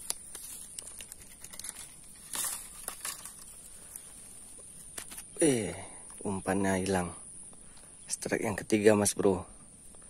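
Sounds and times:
dry grass rustling: 0:00.0 - 0:05.4.

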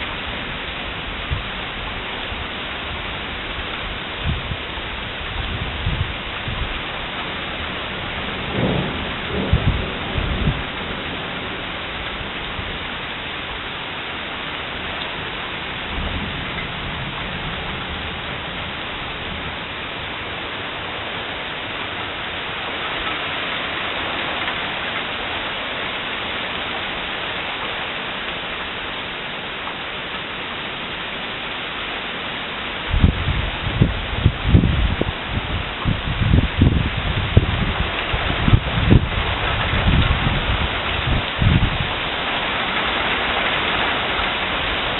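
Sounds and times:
heavy rain on asphalt: 0:00.0 - 0:44.9
low thunder rumbles: 0:04.2 - 0:13.0, 0:32.9 - 0:42.2.

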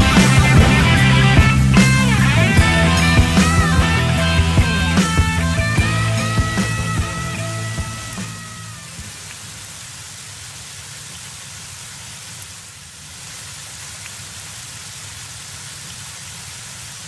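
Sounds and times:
low rumble: 0:00.0 - 0:09.2
steady rain falling: 0:00.0 - 0:17.0.

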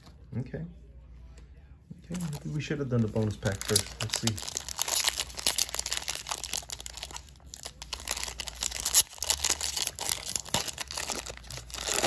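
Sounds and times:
foil pack tearing and crinkling: 0:03.1 - 0:12.0.

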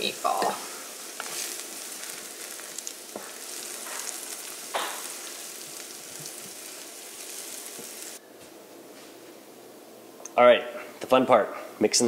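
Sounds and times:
onion sizzling in oil: 0:00.0 - 0:08.2
wooden spoon scraping a pan: 0:00.0 - 0:08.2.

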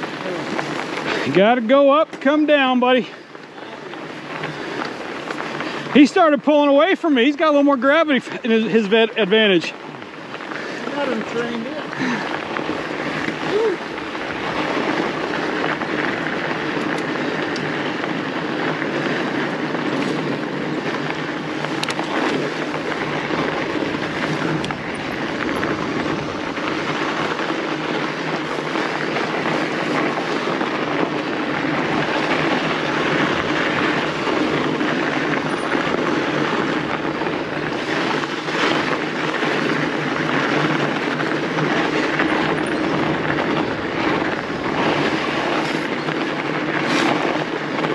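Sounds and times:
bike tyres rolling on snow: 0:00.0 - 0:47.9
wind over camera microphone: 0:10.3 - 0:47.9.

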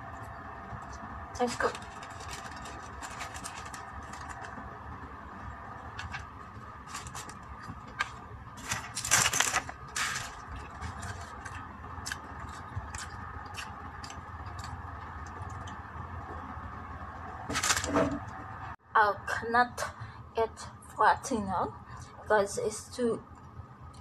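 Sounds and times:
steady background hum: 0:00.0 - 0:24.0
plastic wrapper crinkling: 0:00.8 - 0:04.7, 0:05.9 - 0:14.7, 0:17.5 - 0:18.3.

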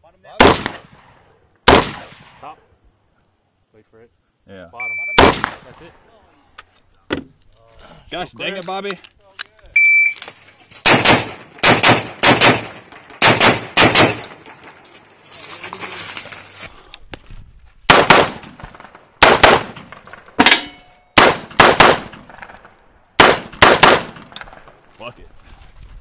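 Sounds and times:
rifle gunshots: 0:00.4 - 0:02.5, 0:05.2 - 0:05.8, 0:10.8 - 0:14.4, 0:17.9 - 0:20.6, 0:21.2 - 0:24.8
steel target ringing: 0:20.4 - 0:21.2.

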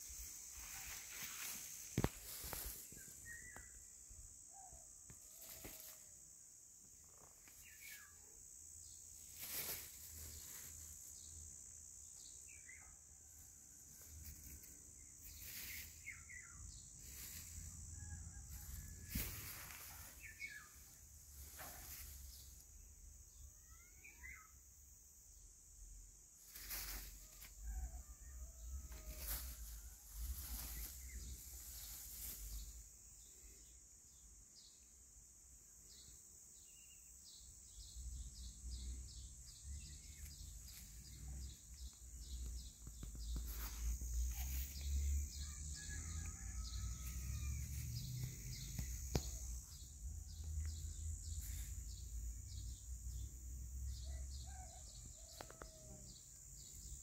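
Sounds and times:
steady high hiss: 0:00.0 - 0:23.6, 0:24.2 - 0:28.1, 0:28.8 - 0:45.6.

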